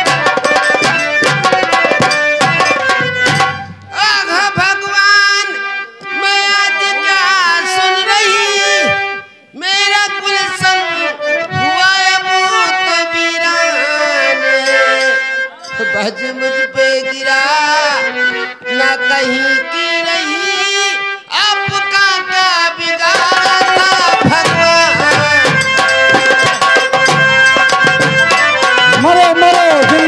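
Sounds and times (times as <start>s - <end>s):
hand drums: 0.0s - 4.0s, 23.0s - 30.0s
harmonium: 0.0s - 30.0s
person singing long notes: 3.8s - 25.7s.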